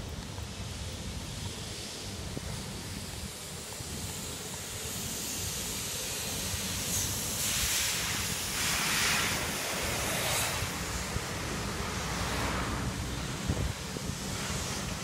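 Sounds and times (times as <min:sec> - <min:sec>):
wind rumbling on microphone: 0:00.0 - 0:15.0
passing car traffic: 0:07.7 - 0:15.0.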